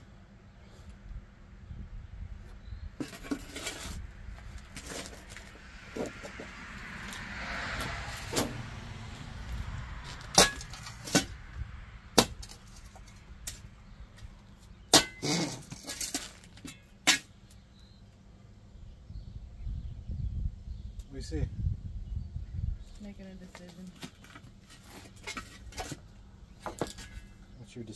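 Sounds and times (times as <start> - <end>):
shovel scraping and knocking in soil: 3.0 - 8.6, 12.2 - 17.4.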